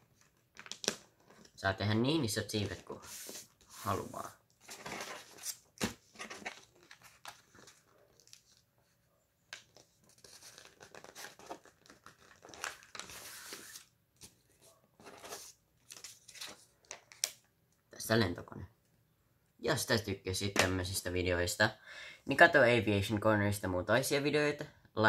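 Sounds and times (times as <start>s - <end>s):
paper crinkling while folded: 9.8s - 13.8s.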